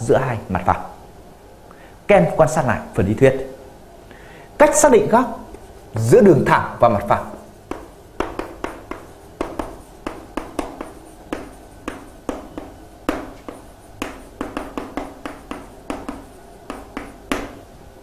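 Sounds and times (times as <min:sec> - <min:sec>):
pen writing on paper: 0:07.4 - 0:17.6.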